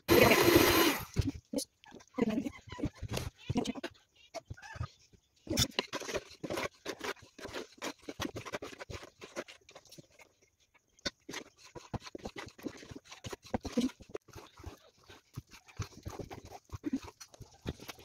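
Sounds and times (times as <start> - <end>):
spatula scraping steel bowl: 5.4 - 18.0.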